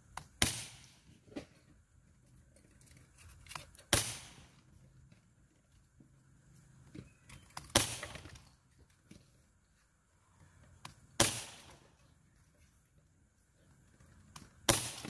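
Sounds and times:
air pistol firing: 0:00.2 - 0:01.0, 0:03.9 - 0:04.6, 0:07.6 - 0:08.3, 0:11.2 - 0:11.9, 0:14.6 - 0:15.0.

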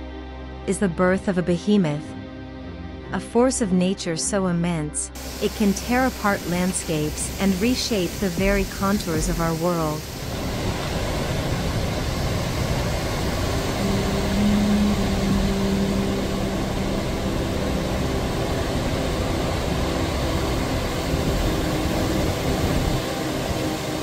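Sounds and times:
driving rain: 0:05.2 - 0:24.0
hurricane wind rushing: 0:05.2 - 0:24.0
surf: 0:05.2 - 0:24.0
low steady tone: 0:12.0 - 0:24.0.

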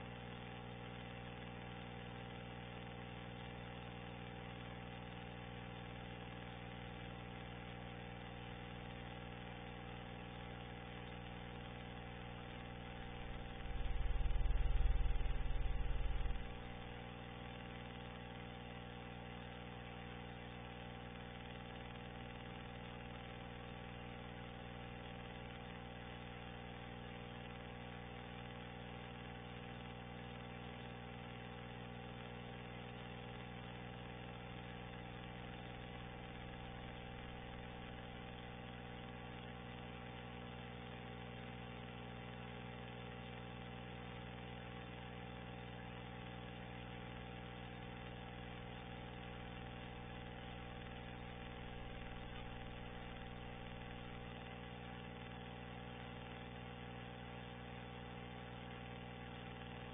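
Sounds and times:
faint steady hum: 0:00.0 - 0:59.9
steady hum of fixed tones: 0:12.8 - 0:17.0.

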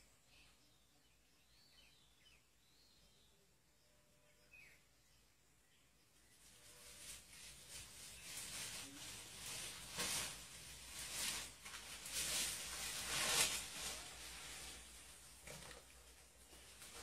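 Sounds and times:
leaves and branches rustling: 0:06.2 - 0:17.0.

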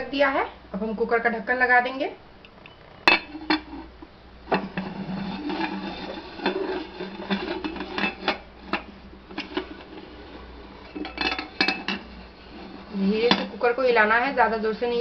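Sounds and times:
pressure cooker lid scraping: 0:03.0 - 0:13.9.

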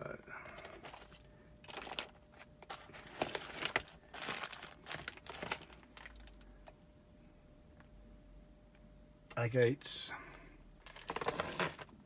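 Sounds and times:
plastic boxes and bags crinkling: 0:00.6 - 0:06.8, 0:10.7 - 0:12.0.

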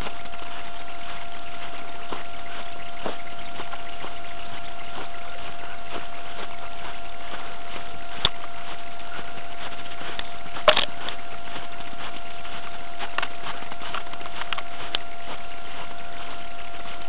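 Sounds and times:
faint constant tone: 0:00.0 - 0:17.0
footsteps crunching in snow: 0:00.0 - 0:17.0
sharp clicks: 0:10.2 - 0:11.2.

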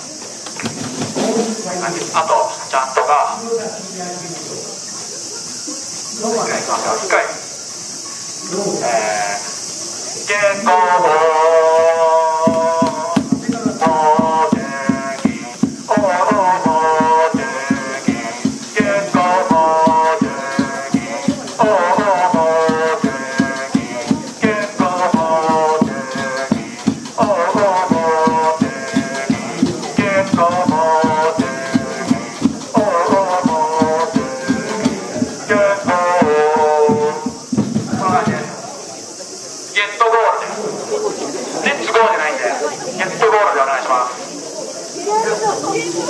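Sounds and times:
crowd chanting in unison: 0:00.7 - 0:46.0
fast drum beat: 0:12.0 - 0:38.6.

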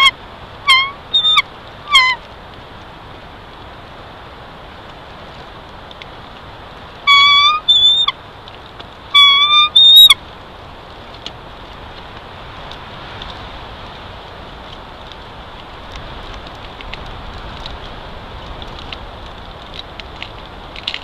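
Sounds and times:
eagle calling: 0:00.0 - 0:02.2, 0:07.1 - 0:08.2, 0:09.1 - 0:10.2.

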